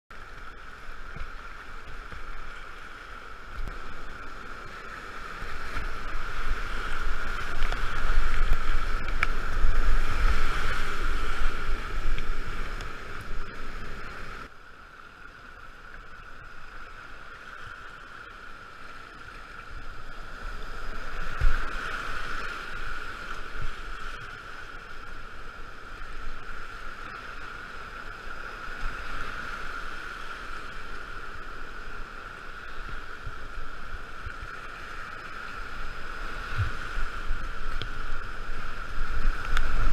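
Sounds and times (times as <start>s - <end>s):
paddle strokes: 0.1s - 14.5s
water slapping the hull: 0.2s - 14.5s
whitewater rapids rushing: 0.2s - 14.5s.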